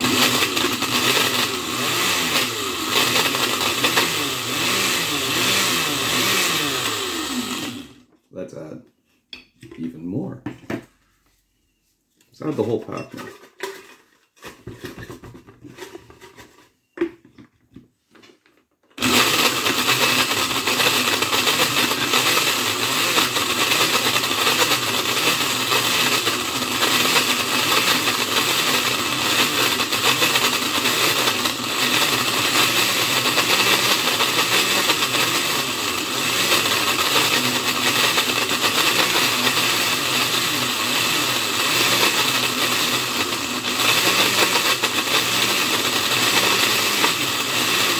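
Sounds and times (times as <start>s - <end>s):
blender chopping cards: 0.0s - 8.1s, 19.0s - 47.9s.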